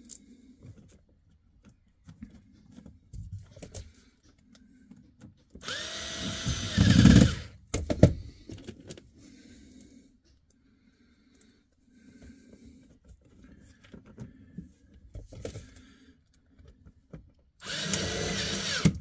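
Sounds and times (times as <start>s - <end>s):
cordless drill motor whirring: 5.6s - 7.6s, 17.6s - 19.0s.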